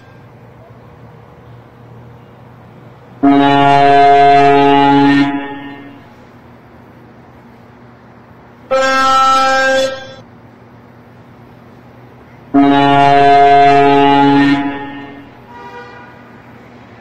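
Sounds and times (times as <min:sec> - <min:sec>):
low hum of traffic: 0:00.0 - 0:17.0
truck air horn blasts: 0:03.2 - 0:06.3, 0:08.7 - 0:10.2, 0:12.5 - 0:16.6.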